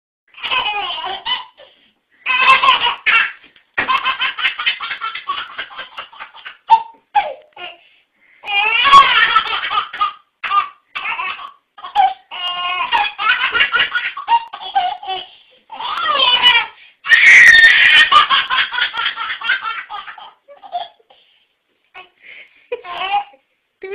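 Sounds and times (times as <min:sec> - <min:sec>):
baby giggling: 0:00.4 - 0:01.7, 0:02.3 - 0:07.6, 0:08.5 - 0:16.7, 0:17.6 - 0:21.1.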